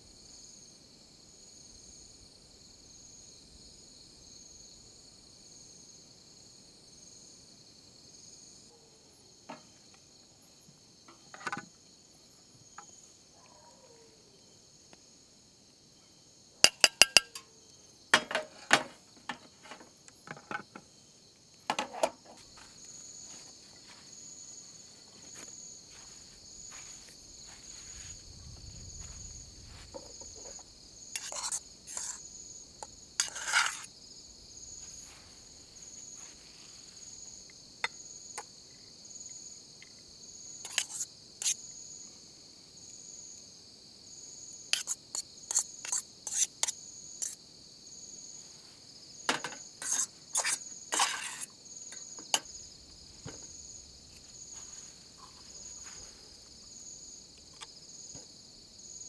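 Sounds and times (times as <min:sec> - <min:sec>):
crickets chirping: 0:00.0 - 0:59.0
utensils clinking on dishes: 0:16.7 - 0:17.5.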